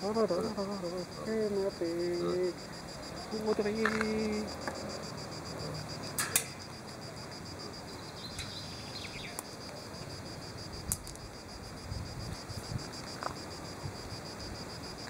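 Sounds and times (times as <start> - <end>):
insects chirring: 0.0 - 15.0
sharp clicks: 6.2 - 6.7.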